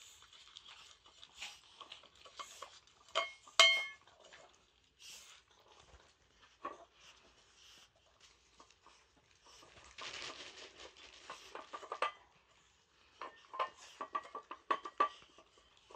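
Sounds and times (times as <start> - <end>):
dogs eating from metal bowls: 0.0 - 7.5, 11.2 - 15.9.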